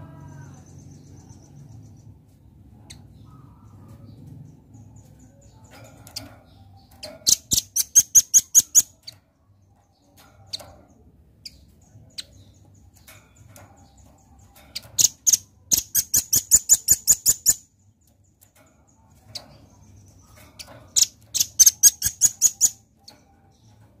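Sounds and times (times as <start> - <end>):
bird high chipping calls: 7.0 - 9.1, 14.8 - 17.8, 19.9 - 23.0.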